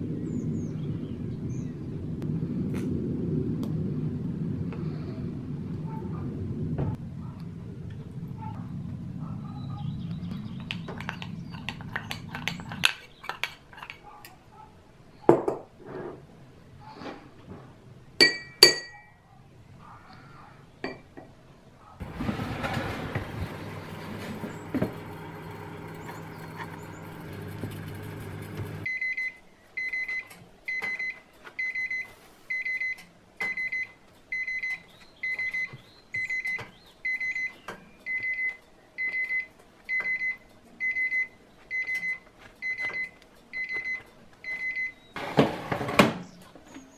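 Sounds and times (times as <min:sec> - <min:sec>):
spoon clinking in ceramic cup: 0:18.2 - 0:19.0
oven fan humming: 0:22.0 - 0:28.9
oven timer beeping: 0:22.6 - 0:45.0.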